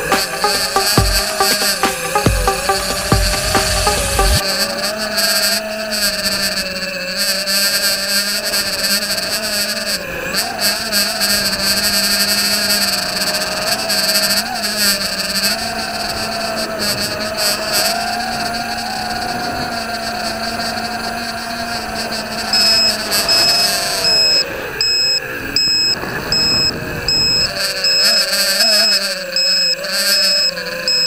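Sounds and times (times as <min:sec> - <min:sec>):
high electronic beeper: 0:00.0 - 0:04.7
quadcopter motors whining: 0:00.0 - 0:31.0.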